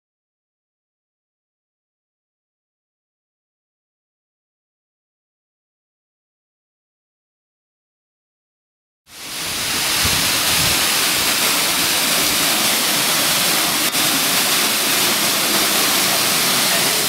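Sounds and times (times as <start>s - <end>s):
waterfall rushing: 9.1s - 17.0s.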